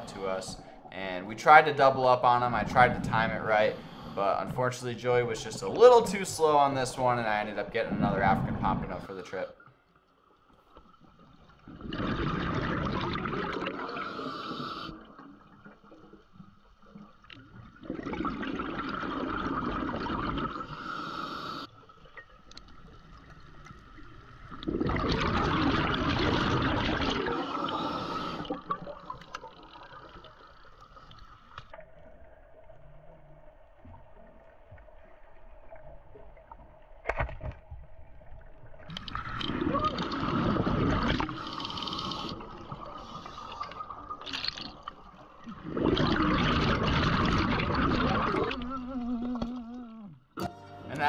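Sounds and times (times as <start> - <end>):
diver breathing: 3.5 - 4.4, 13.9 - 15.1, 20.6 - 21.7, 27.3 - 28.7
underwater regulator bubbling: 11.7 - 15.2, 24.5 - 29.6, 38.9 - 50.2.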